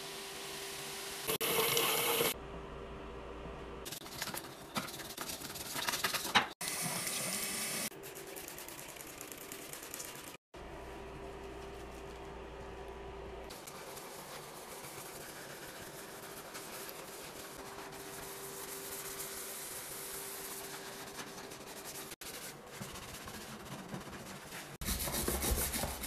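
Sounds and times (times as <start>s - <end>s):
tap water running into basin: 1.3s - 2.4s.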